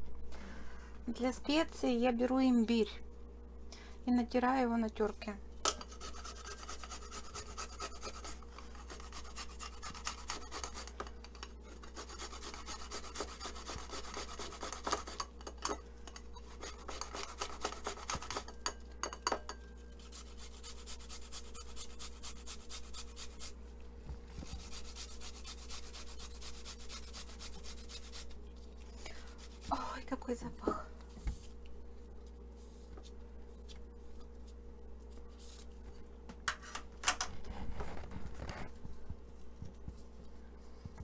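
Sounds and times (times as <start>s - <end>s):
ginger grated on metal grater: 5.8s - 15.6s, 16.4s - 18.5s, 20.0s - 23.6s, 24.4s - 28.4s.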